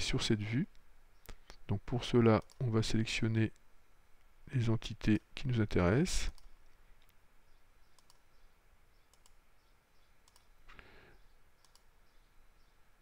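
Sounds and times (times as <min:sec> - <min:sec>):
computer mouse clicks: 0:07.9 - 0:08.3, 0:09.1 - 0:09.4, 0:10.2 - 0:10.5, 0:11.6 - 0:11.9.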